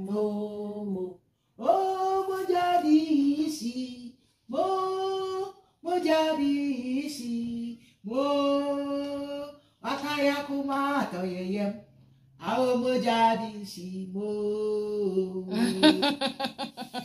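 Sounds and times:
woman singing unaccompanied: 0:15.3 - 0:16.7.

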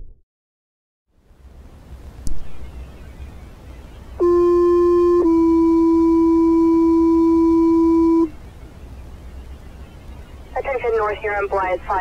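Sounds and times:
radio hiss: 0:10.5 - 0:12.0
two-tone radio page: 0:10.6 - 0:12.0.

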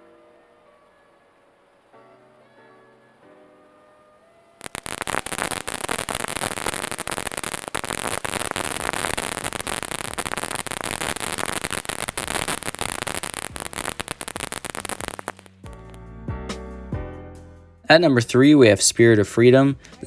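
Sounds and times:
firework crackling pops: 0:04.6 - 0:16.0
hiss of spark sprays: 0:04.6 - 0:16.0.

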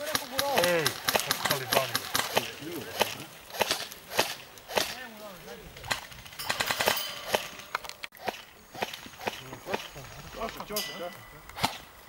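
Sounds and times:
airsoft guns firing: 0:00.0 - 0:05.1, 0:05.9 - 0:10.0, 0:11.5 - 0:11.9.

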